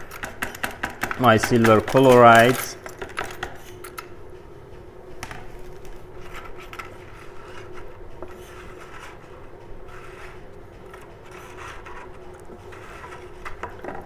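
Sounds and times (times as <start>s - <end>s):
stick scraping in bucket: 1.2s - 2.8s, 11.0s - 14.0s.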